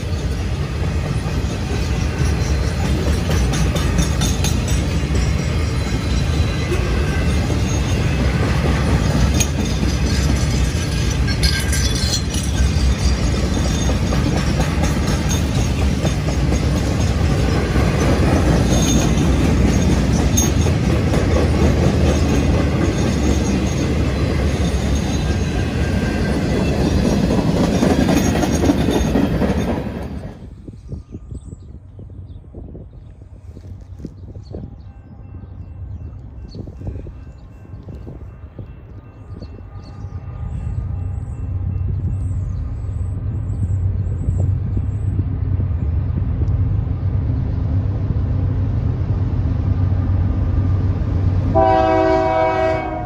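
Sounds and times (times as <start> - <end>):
train wheels rumbling on track: 0.0 - 53.0.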